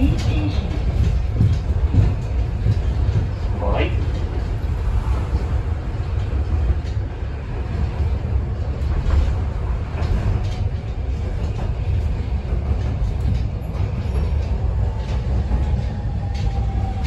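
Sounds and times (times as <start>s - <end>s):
tram wheels rumbling on track: 0.0s - 17.0s.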